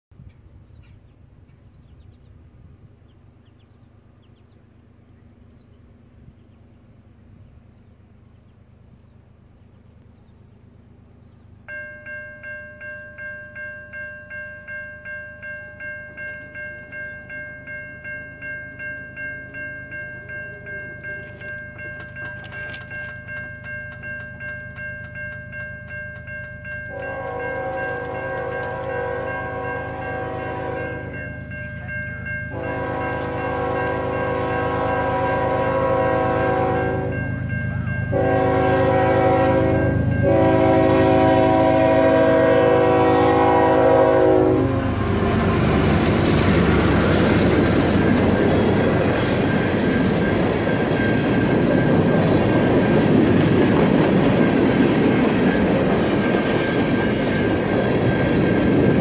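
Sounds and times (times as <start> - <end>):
crossing bell ringing: 11.6 - 59.0
train horn: 26.9 - 48.2.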